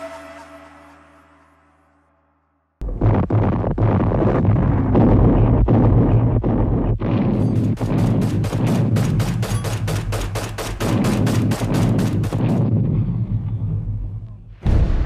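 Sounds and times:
low rumble of battle: 0:02.8 - 0:15.0
rapid gunfire: 0:03.0 - 0:13.0.

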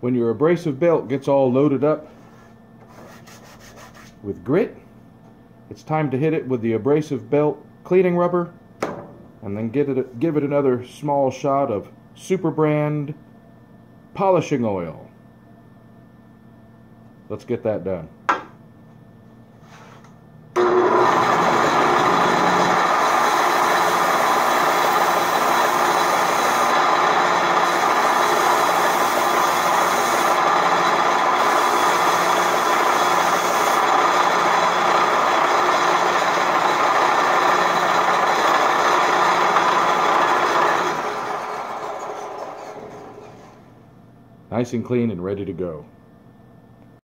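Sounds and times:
belt sander running: 0:20.6 - 0:43.6.

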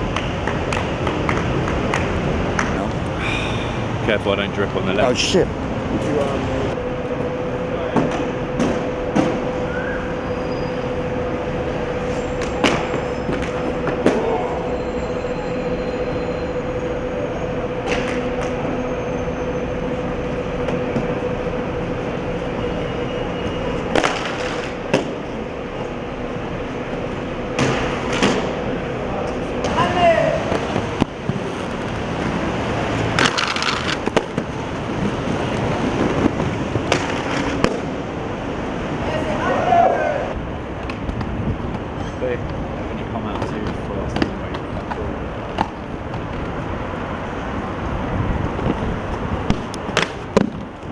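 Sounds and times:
mechanical drone with hum: 0:03.8 - 0:29.8
inline skates rolling on concrete: 0:23.5 - 0:26.0, 0:29.3 - 0:38.2.

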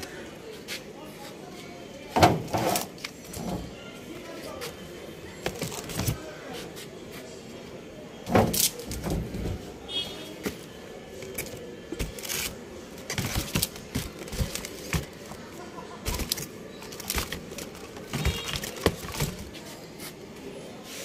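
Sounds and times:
cardboard boxes knocking and rustling: 0:05.4 - 0:06.2, 0:11.4 - 0:19.7.

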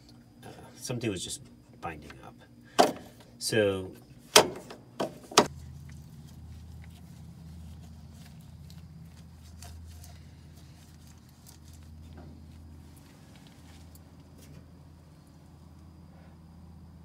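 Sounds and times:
steady low hum: 0:00.0 - 0:17.0
sharp knocks of metal parts: 0:02.8 - 0:03.2, 0:04.3 - 0:05.5.

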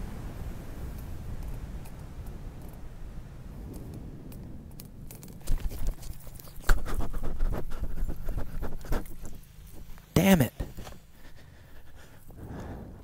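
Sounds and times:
wind rumble on microphone: 0:00.0 - 0:10.0, 0:10.7 - 0:13.0
footsteps on dry grass: 0:05.0 - 0:12.2.

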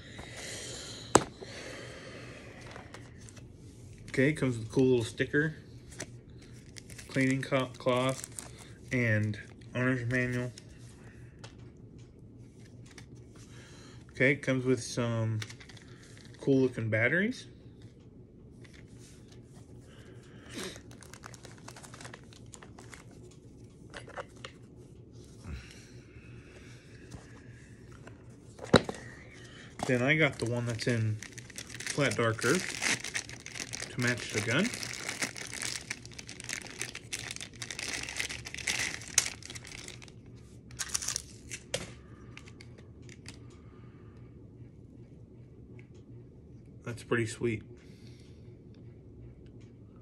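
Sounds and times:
packaging crinkling and rustling: 0:05.9 - 0:10.6, 0:15.4 - 0:16.4, 0:20.6 - 0:24.5, 0:29.8 - 0:43.4.

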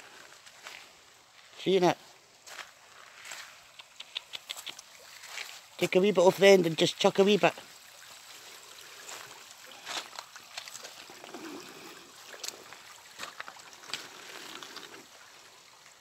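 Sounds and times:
sharp clicks: 0:03.7 - 0:04.9
river flowing over stones: 0:04.8 - 0:16.0.

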